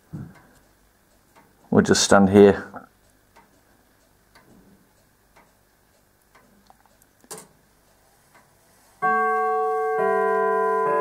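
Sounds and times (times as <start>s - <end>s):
clock ticking faintly: 0.0s - 9.9s.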